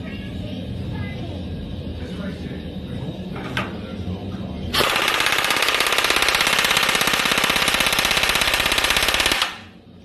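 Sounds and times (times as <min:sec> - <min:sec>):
riveting machine hammering: 0:04.7 - 0:09.8.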